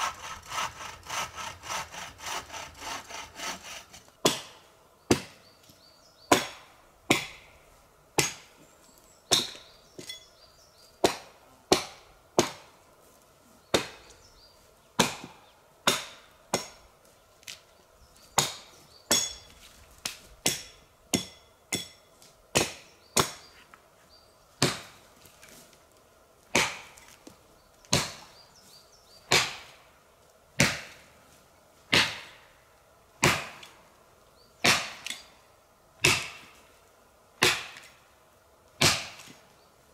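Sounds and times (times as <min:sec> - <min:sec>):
axe chopping log: 0:04.2 - 0:04.5, 0:06.3 - 0:07.5, 0:11.0 - 0:12.7, 0:15.0 - 0:16.8, 0:22.5 - 0:23.4, 0:24.6 - 0:25.0, 0:26.5 - 0:27.0, 0:27.9 - 0:28.2, 0:29.3 - 0:29.8, 0:30.6 - 0:30.9, 0:31.9 - 0:32.4, 0:33.2 - 0:33.7, 0:34.6 - 0:35.2, 0:36.0 - 0:36.5, 0:37.4 - 0:37.9, 0:38.8 - 0:39.4.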